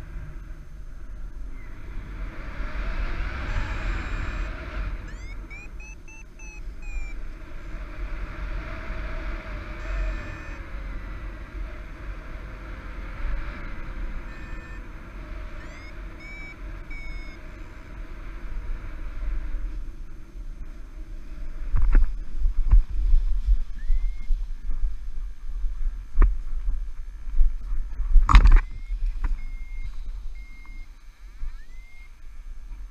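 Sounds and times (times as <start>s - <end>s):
wind over microphone: 0.0s - 32.9s
rising electronic beeps: 3.3s - 7.2s, 9.8s - 10.6s, 14.2s - 14.8s, 15.5s - 17.4s, 23.8s - 24.3s, 28.6s - 32.1s.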